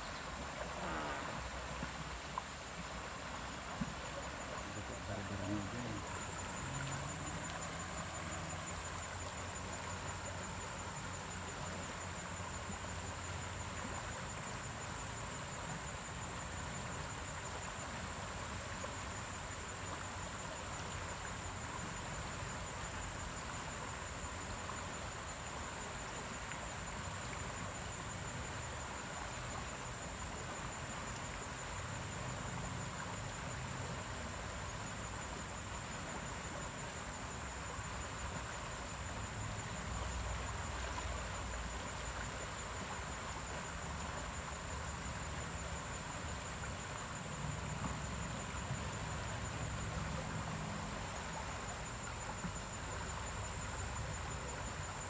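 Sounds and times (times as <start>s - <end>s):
high-pitched insect chorus: 0.0s - 55.0s
river water flowing: 0.0s - 55.0s.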